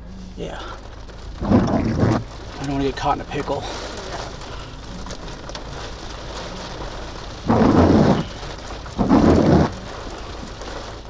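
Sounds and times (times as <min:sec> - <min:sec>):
steady rain: 0:00.0 - 0:11.0
loud bursts of storm noise: 0:01.2 - 0:04.8, 0:06.5 - 0:11.0.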